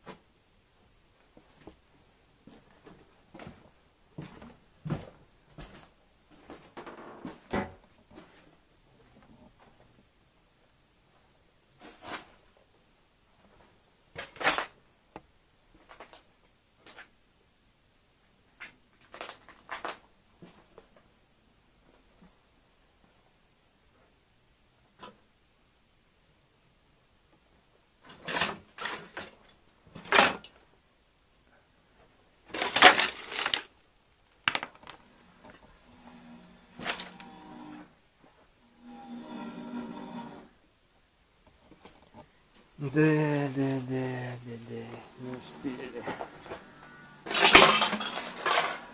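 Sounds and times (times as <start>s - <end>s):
junk scraping and rustling: 45.4s - 48.9s.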